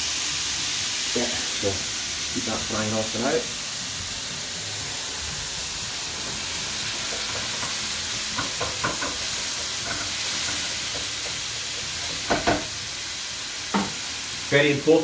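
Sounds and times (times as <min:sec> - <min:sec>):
meat sizzling in a frying pan: 0:00.0 - 0:15.0
spatula scraping a pan: 0:08.4 - 0:12.4.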